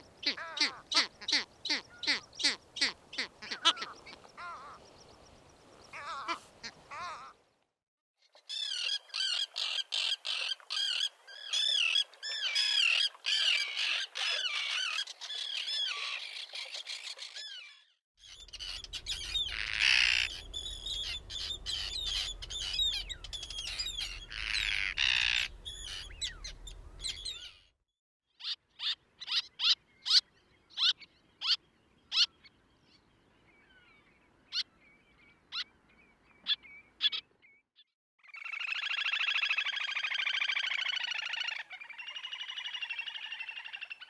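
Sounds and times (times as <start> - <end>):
faint seabird call: 0.2 - 4.8, 5.9 - 7.4
rasping tern calls: 0.2 - 4.8, 5.9 - 7.3, 8.5 - 17.5, 18.2 - 27.6
terns calling harshly: 0.2 - 4.8, 5.9 - 7.4, 8.4 - 27.7
low rumble: 18.5 - 24.5.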